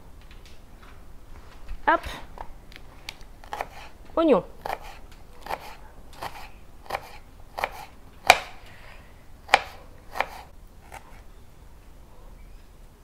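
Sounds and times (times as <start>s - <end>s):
knife chopping on cutting board: 3.4s - 3.9s, 4.6s - 8.6s, 9.5s - 11.2s.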